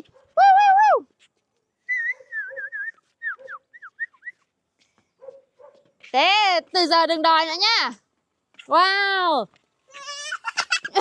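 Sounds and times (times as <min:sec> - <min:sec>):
person whistling: 0:01.9 - 0:04.4.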